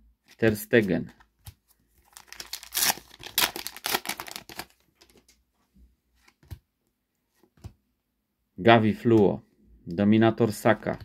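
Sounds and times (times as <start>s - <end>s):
wrapper tearing and crinkling: 2.0s - 5.2s.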